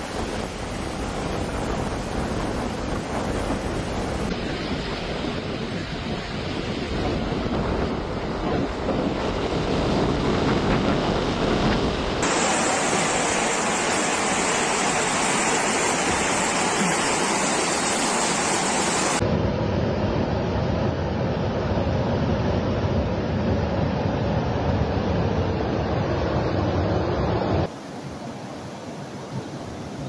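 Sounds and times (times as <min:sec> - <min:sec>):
wind buffeting microphone: 0:00.0 - 0:12.3
rushing floodwater: 0:12.0 - 0:19.2.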